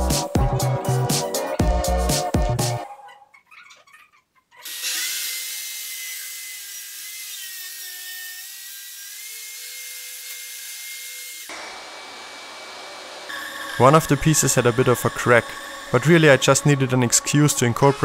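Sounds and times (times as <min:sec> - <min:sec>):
circular saw cutting wood: 0:04.6 - 0:18.0.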